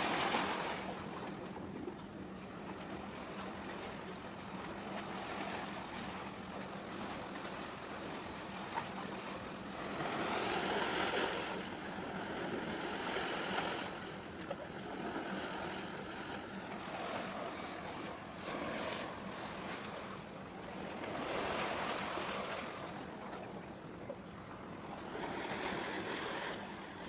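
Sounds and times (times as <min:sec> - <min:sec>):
sea wash: 0:00.0 - 0:27.0.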